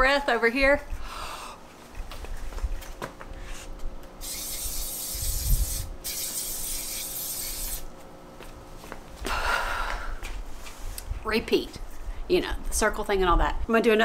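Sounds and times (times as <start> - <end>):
aerosol spray can hissing: 4.2 - 7.9.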